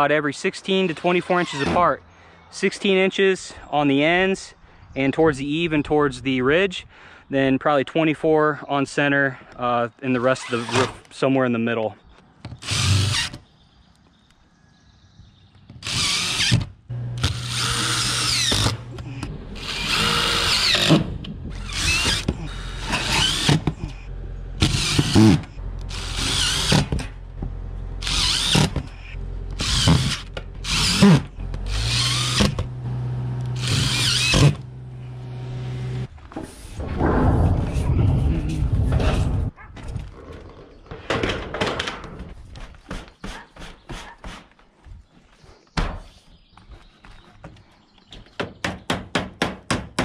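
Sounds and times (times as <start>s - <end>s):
impact driver driving screws into metal: 19.7s - 23.9s, 24.6s - 27.1s, 28.1s - 29.0s, 33.5s - 34.6s.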